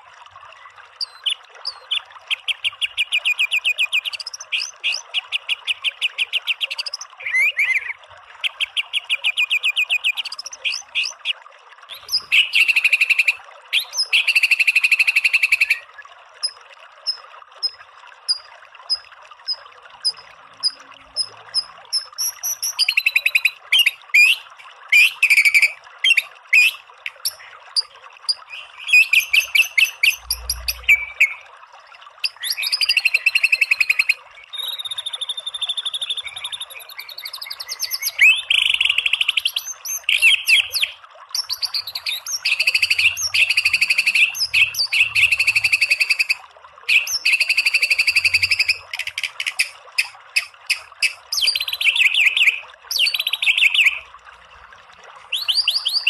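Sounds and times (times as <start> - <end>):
trickling stream water: 0.0 - 56.0
bird singing rapid notes: 11.9 - 15.8, 16.4 - 31.4, 32.2 - 54.0.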